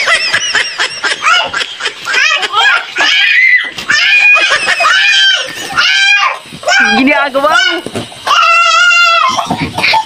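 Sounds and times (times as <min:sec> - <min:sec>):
children laughing loudly: 0:00.0 - 0:07.1, 0:07.7 - 0:10.0.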